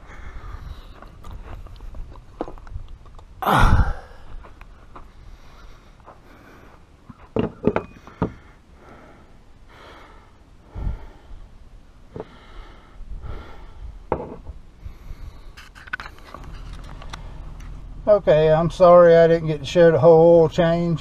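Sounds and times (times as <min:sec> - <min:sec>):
person breathing: 0:00.0 - 0:01.6, 0:03.4 - 0:07.0, 0:07.9 - 0:11.5, 0:12.1 - 0:14.1, 0:14.7 - 0:16.4.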